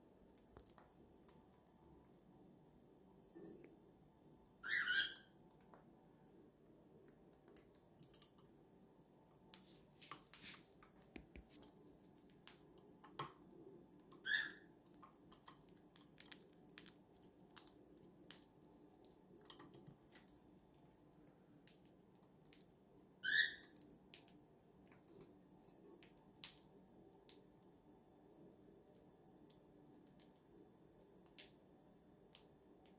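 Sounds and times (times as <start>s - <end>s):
bird chirps: 4.6s - 5.4s, 14.2s - 14.6s, 23.2s - 23.7s.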